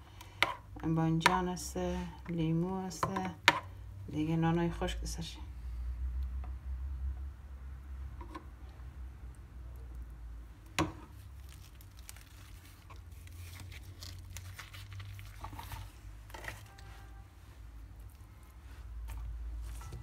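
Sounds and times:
flatbread crinkling and rustling: 0:11.0 - 0:17.2.

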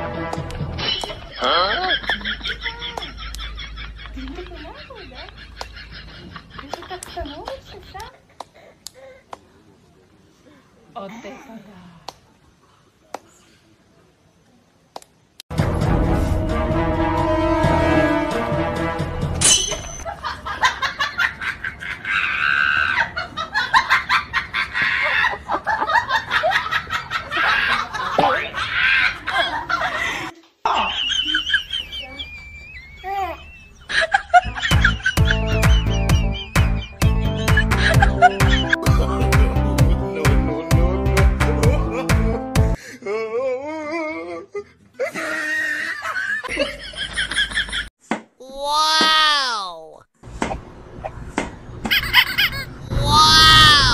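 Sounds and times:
people laughing: 0:00.8 - 0:08.4, 0:20.0 - 0:42.4.

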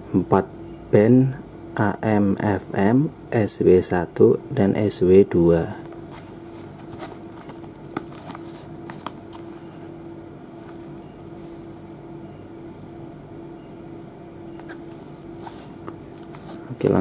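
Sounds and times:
steady hum: 0:00.0 - 0:17.0
cardboard box clicks and rubs: 0:06.2 - 0:09.5.

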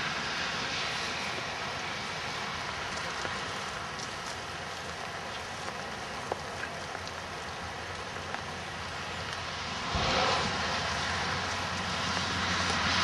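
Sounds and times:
steady rain hiss: 0:00.0 - 0:13.0
raindrop ticks: 0:02.2 - 0:09.5, 0:10.7 - 0:13.0.

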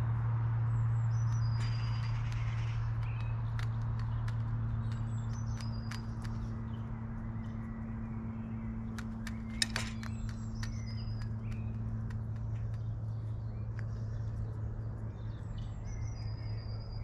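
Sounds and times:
small birds chirping: 0:00.0 - 0:17.0
steady low hum: 0:00.0 - 0:17.0
sharp clicks and taps: 0:01.2 - 0:06.8, 0:08.8 - 0:15.2.

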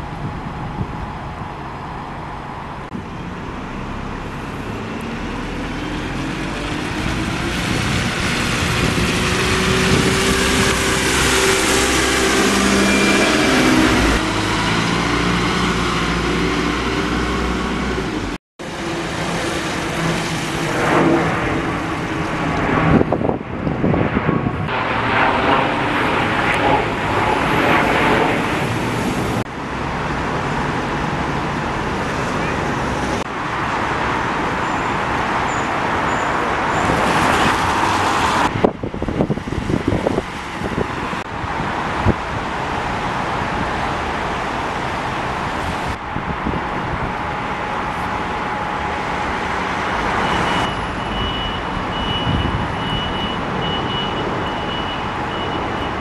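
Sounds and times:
diesel buses running: 0:00.0 - 0:56.0
vehicle engine passing: 0:02.9 - 0:23.4.

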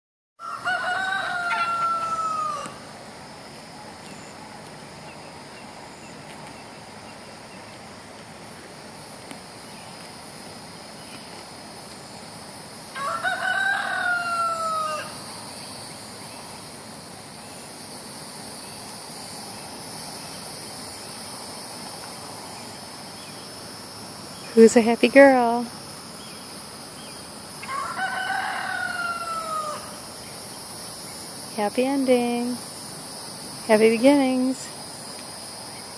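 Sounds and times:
rooster crowing: 0:00.4 - 0:02.9, 0:12.9 - 0:15.3, 0:27.5 - 0:30.1
insects chirring: 0:00.4 - 0:35.9.

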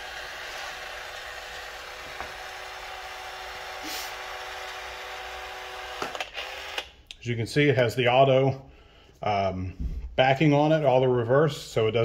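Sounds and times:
caulk gun motor running: 0:00.0 - 0:06.9.

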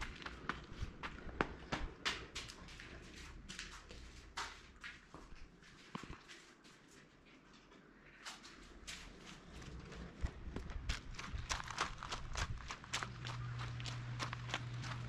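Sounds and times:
footsteps on hard tiled floor: 0:00.0 - 0:07.5.

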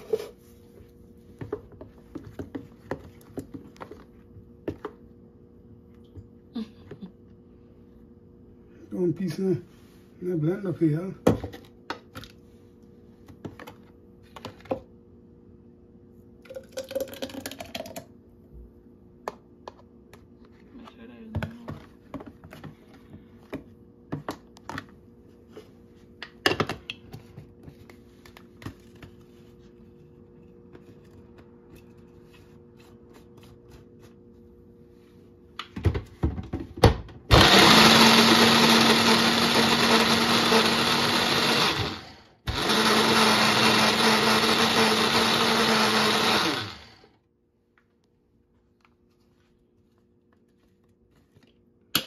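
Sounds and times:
electric blender grinding: 0:37.3 - 0:47.1.

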